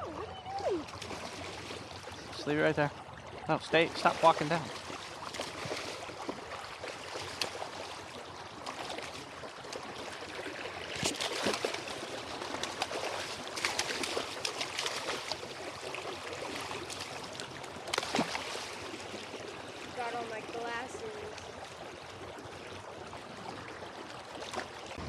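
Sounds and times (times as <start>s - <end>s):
fish splashing in water: 0.0s - 2.3s, 3.2s - 19.9s
creek water rushing: 0.0s - 25.0s.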